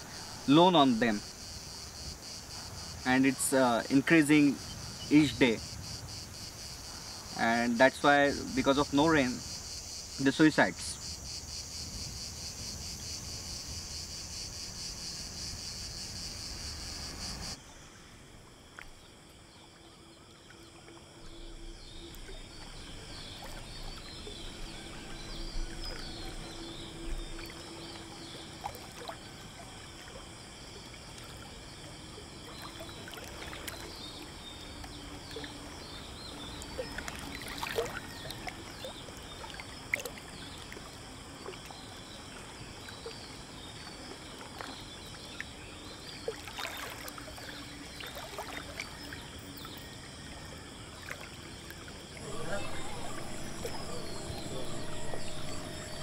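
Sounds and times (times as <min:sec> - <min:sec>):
insects chirring: 0:00.0 - 0:56.0
water splashing and lapping: 0:11.0 - 0:56.0
faint chirps: 0:13.1 - 0:29.8, 0:52.2 - 0:56.0.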